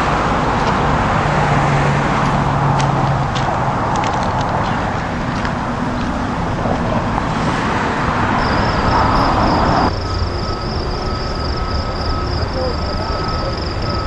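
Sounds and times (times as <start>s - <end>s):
train running rumble: 0.0s - 14.0s
high pulsing trill: 8.3s - 14.0s
thin steady tone: 8.4s - 14.0s.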